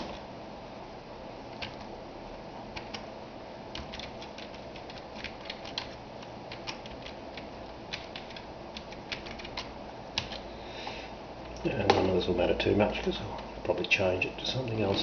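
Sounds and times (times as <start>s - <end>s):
steady low hum: 0.0s - 15.0s
keyboard typing: 1.5s - 1.9s, 2.8s - 3.1s, 3.7s - 10.5s.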